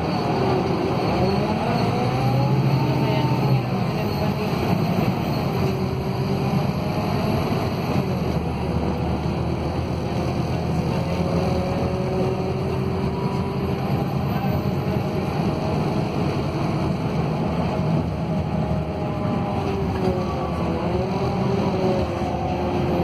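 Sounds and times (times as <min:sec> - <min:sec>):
bus engine low rumble: 0:00.0 - 0:23.0
engine and driveline whine: 0:00.0 - 0:23.0.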